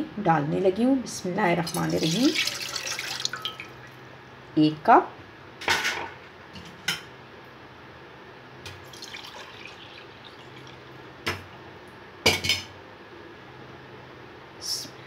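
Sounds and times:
milk splashing: 1.7s - 3.9s, 8.8s - 10.9s
glass cup clinking: 2.8s - 3.7s.

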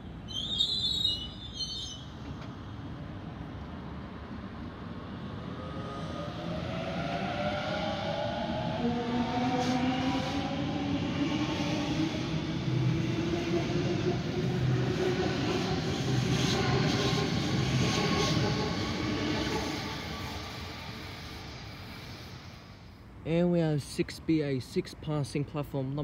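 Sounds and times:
train wheels rumbling on rails: 2.0s - 22.9s.

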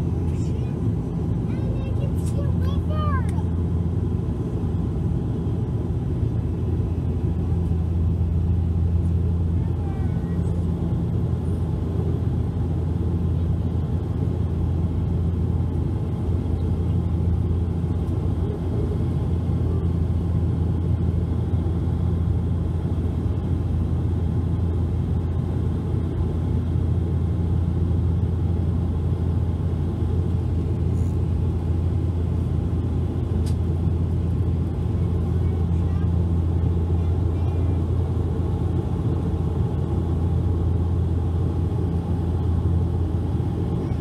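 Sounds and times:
turboprop engine drone in cabin: 0.0s - 44.0s.

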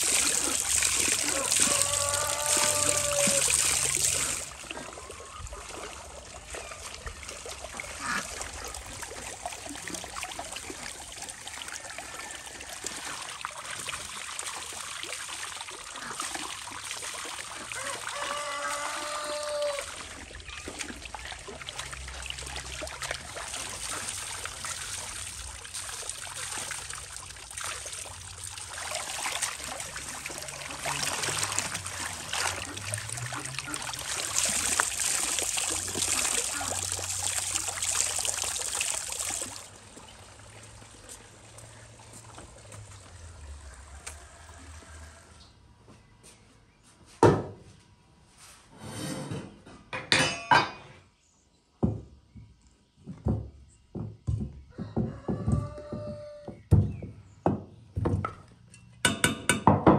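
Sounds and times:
running water trickling and splashing: 0.0s - 45.5s.

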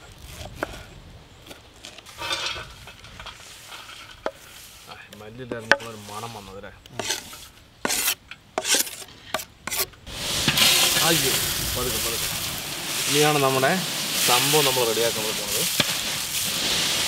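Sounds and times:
potato chips crackling rustle: 10.6s - 17.0s.

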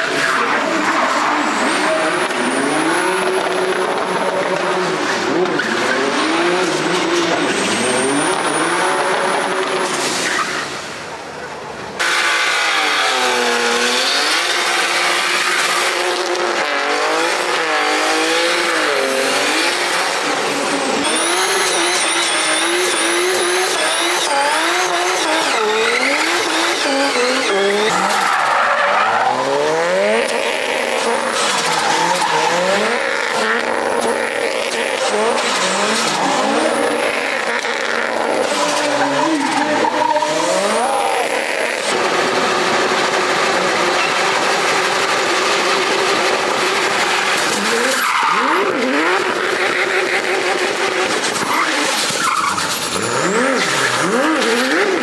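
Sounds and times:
car engines revving: 0.0s - 55.0s
tyres squealing: 46.5s - 55.0s.

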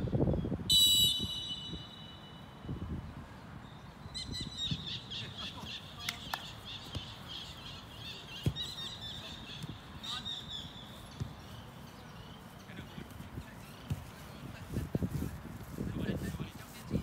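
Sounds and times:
birds chirping rapidly: 0.4s - 14.5s
football kicked on grass: 6.8s - 7.2s, 8.4s - 8.8s, 11.1s - 11.6s, 13.8s - 16.4s.

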